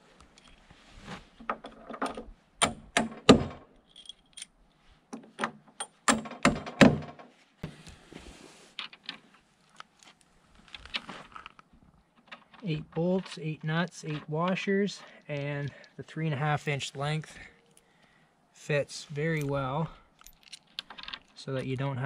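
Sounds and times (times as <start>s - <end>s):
metal bolts clinking together: 3.8s - 6.4s, 19.3s - 21.4s.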